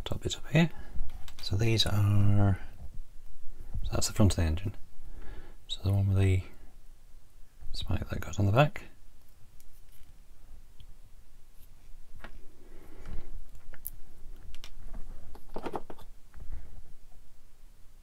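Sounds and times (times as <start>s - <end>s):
soft rubbing: 9.2s - 10.6s, 11.4s - 17.3s.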